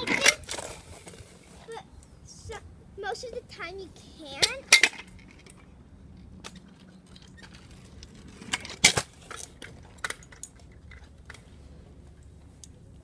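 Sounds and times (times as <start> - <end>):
scooter wheels clacking on concrete: 0.0 - 1.8, 4.3 - 12.4.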